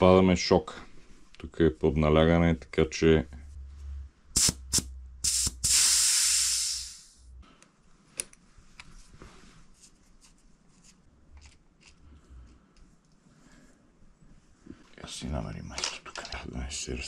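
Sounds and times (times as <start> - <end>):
compressed air hissing from valve: 4.4 - 7.3.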